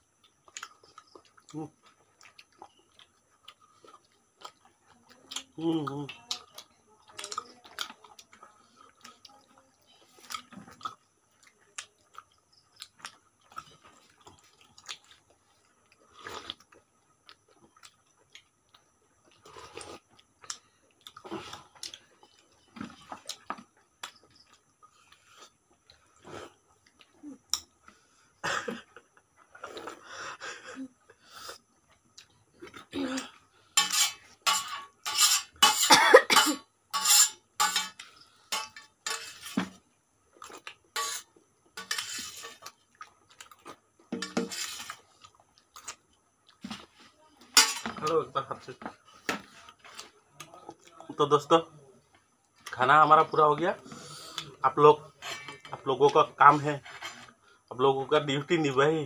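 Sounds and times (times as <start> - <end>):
soft eating sounds: 0.0 - 35.9, 36.9 - 59.0
fingers clinking on steel plate: 33.8 - 39.6.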